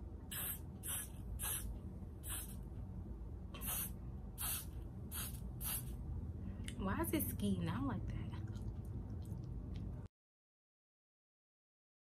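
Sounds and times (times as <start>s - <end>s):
hairspray can hissing sprays: 0.3s - 2.6s, 3.6s - 5.9s.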